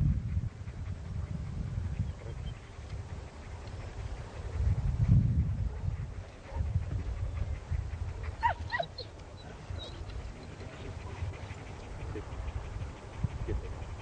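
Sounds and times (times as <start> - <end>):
steady low rumble: 0.0 - 14.0
dog whining: 8.4 - 10.9.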